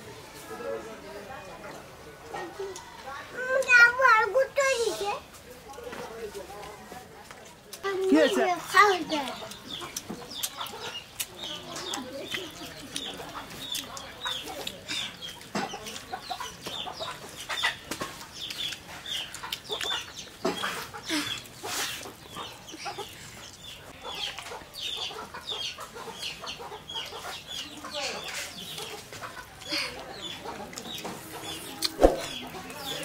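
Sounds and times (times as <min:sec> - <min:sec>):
chickens clucking: 0:07.4 - 0:33.0.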